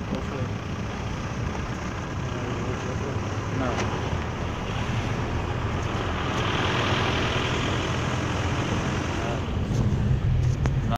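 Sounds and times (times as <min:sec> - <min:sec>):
tyres and engine rumble: 0:00.0 - 0:10.9
rushing noise: 0:03.2 - 0:10.6.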